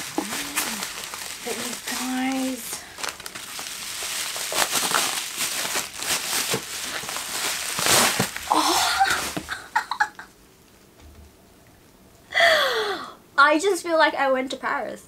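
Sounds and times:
bubble wrap crinkling: 0.0s - 10.1s.

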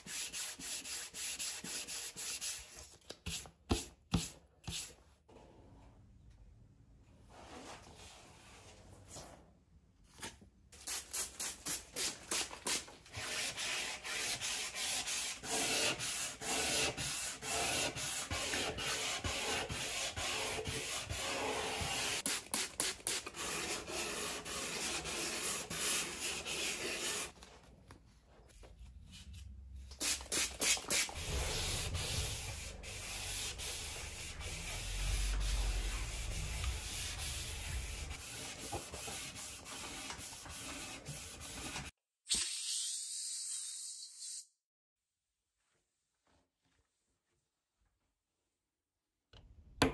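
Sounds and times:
hand sanding fiberglass: 0.0s - 4.9s, 11.2s - 27.4s, 30.0s - 41.9s
low rumble: 31.2s - 38.1s.

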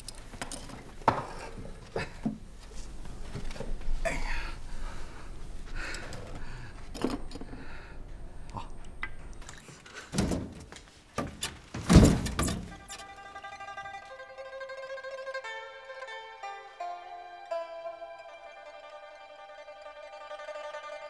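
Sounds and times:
heavy thumps: 10.1s - 12.9s.

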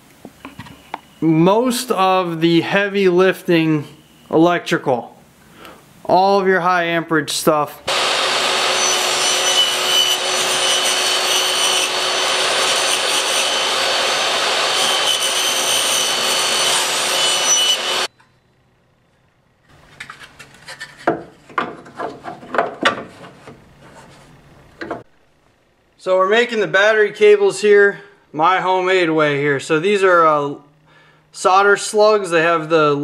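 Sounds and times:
table saw ripping wood: 7.9s - 18.1s.

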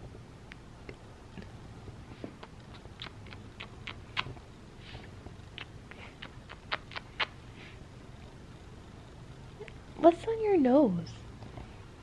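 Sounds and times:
lip smacks of kissing: 2.2s - 4.4s, 5.5s - 7.4s.

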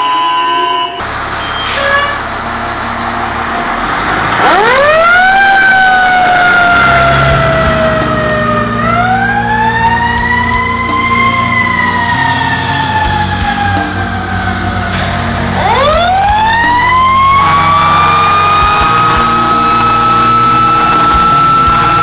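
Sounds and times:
fire engine siren wailing: 0.0s - 22.0s
truck engine rumble: 1.0s - 22.0s.

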